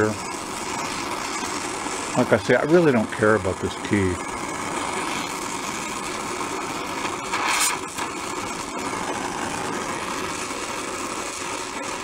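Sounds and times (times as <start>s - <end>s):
gas torch flame hissing: 0.0s - 12.0s.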